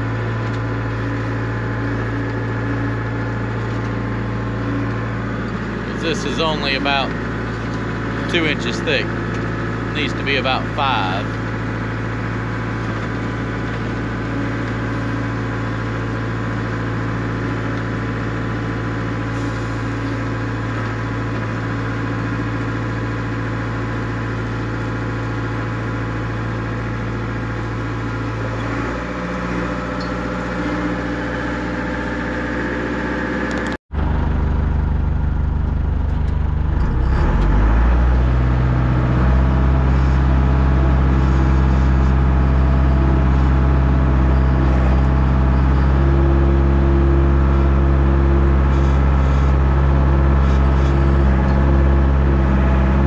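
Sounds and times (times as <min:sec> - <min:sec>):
deep engine rising in pitch: 0:00.0 - 0:18.2, 0:28.0 - 0:53.0
heavy diesel engines running: 0:00.0 - 0:53.0.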